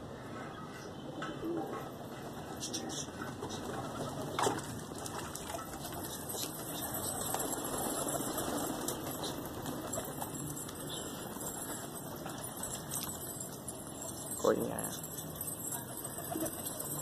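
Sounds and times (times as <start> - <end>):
pigeon wings flapping: 3.3 - 13.6.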